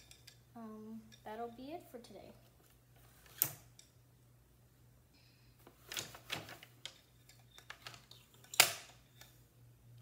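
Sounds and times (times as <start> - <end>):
loom parts knocking and rattling: 5.8 - 8.9.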